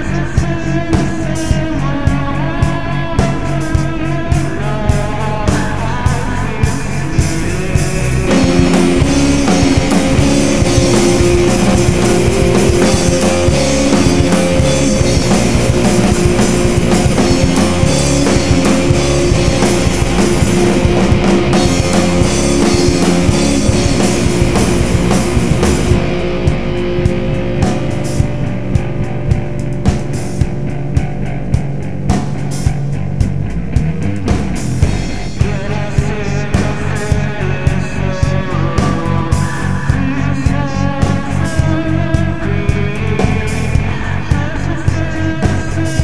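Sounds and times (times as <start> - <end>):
picked guitar line: 0.0 - 46.0
rock band playing: 0.0 - 46.0
drum hits: 7.2 - 35.6.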